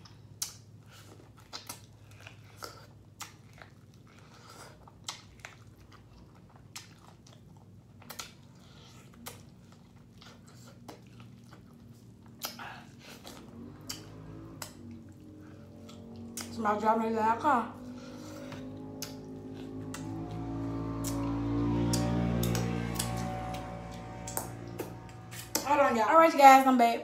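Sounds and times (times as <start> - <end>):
wet mouth clicks: 12.2 - 14.9, 19.0 - 19.2.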